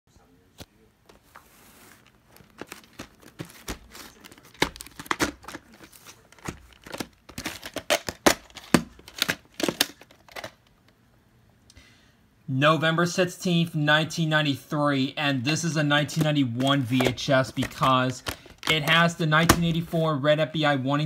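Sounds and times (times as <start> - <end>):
plastic case crackling clicks: 2.4 - 11.0, 16.2 - 19.7.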